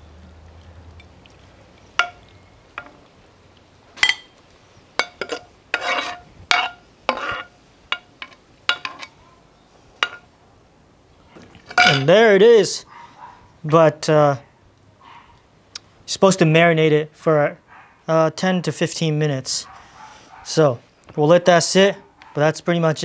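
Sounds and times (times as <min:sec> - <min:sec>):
spoon clinking on ceramic bowls: 0:02.0 - 0:03.0, 0:04.0 - 0:04.4.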